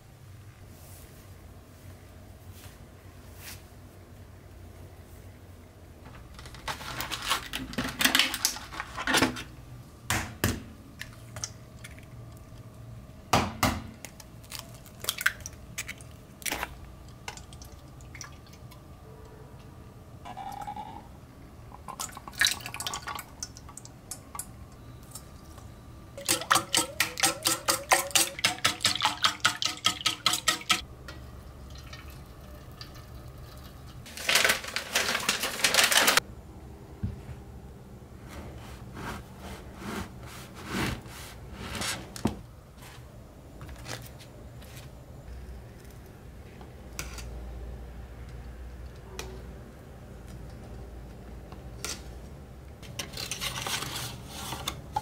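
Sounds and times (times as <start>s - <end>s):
whisking against metal bowl: 26.2s - 30.8s
milk pouring: 31.4s - 34.1s.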